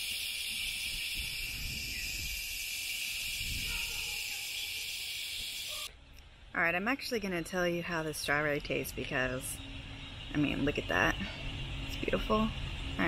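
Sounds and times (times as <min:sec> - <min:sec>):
hose nozzle spraying water: 0:00.0 - 0:05.9.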